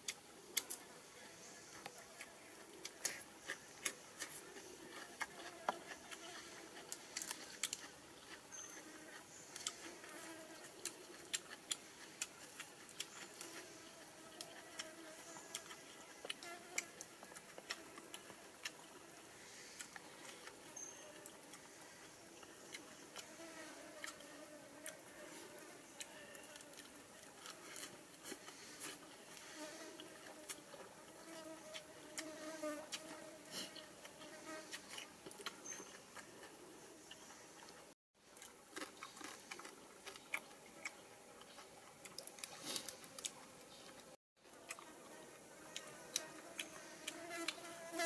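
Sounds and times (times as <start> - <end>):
cucumber being chewed: 1.8 - 19.0, 24.0 - 25.1, 25.9 - 29.4, 30.0 - 32.3, 32.9 - 45.0, 45.7 - 47.7
faint insect buzz: 8.5 - 11.2, 13.2 - 26.8, 27.6 - 35.0, 44.8 - 48.0.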